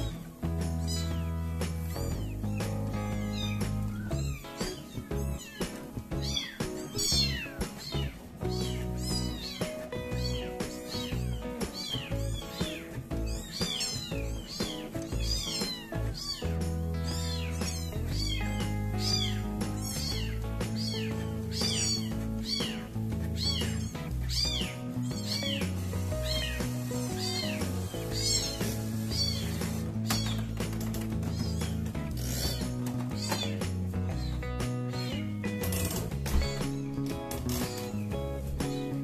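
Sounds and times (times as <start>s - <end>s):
background music with bass: 0.0s - 39.0s
kitten mewing: 0.9s - 1.3s, 3.0s - 25.6s, 26.2s - 30.6s, 31.2s - 32.6s.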